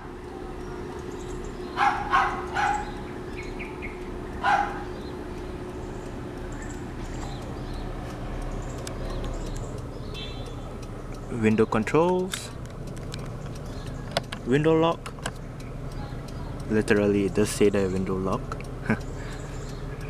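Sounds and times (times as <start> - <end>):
car engine idling: 0.0 - 20.0
dog barking: 1.7 - 3.0, 4.4 - 5.0, 16.0 - 16.6.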